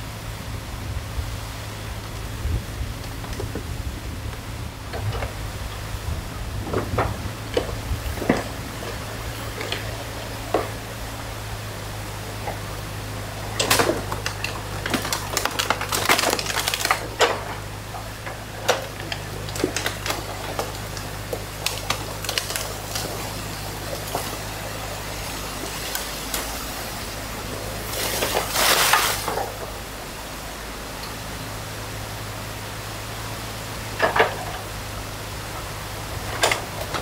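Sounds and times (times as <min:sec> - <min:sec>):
excavator engine running: 0:00.0 - 0:37.0
sticks and branches cracking: 0:12.4 - 0:29.7.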